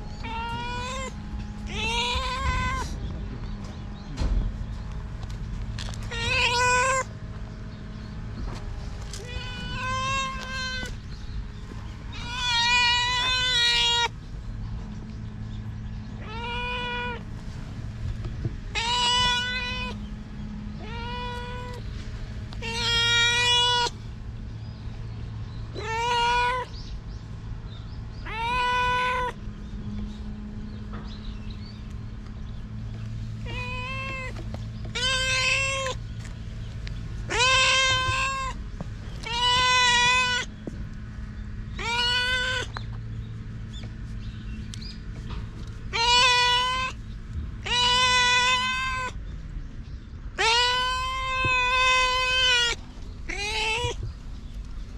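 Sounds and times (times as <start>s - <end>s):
steady low hum: 0.0s - 54.9s
cat meowing loudly: 0.2s - 3.0s, 6.1s - 7.1s, 9.1s - 11.0s, 12.1s - 14.2s, 16.2s - 17.2s, 18.7s - 20.0s, 20.8s - 21.8s, 22.6s - 23.9s, 25.7s - 26.8s, 28.2s - 29.4s, 33.4s - 36.0s, 37.3s - 38.6s, 39.2s - 40.5s, 41.8s - 42.7s, 45.9s - 47.0s, 47.6s - 49.2s, 50.4s - 54.0s.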